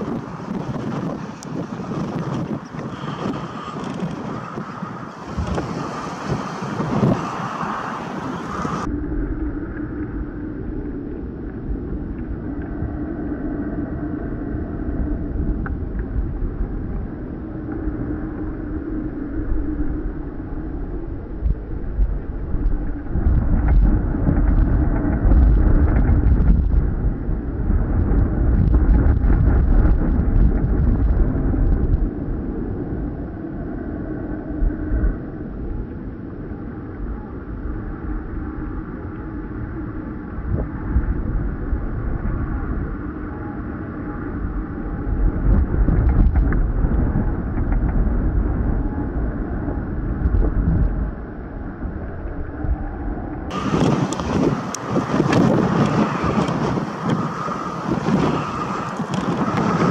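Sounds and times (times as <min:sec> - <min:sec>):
choppy sea rushing: 0:00.0 - 0:59.9
wind buffeting microphone: 0:00.0 - 0:59.9.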